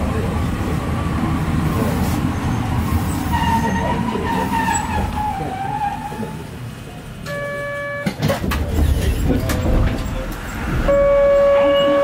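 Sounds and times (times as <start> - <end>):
tram knocks and clatters: 8.0 - 12.0.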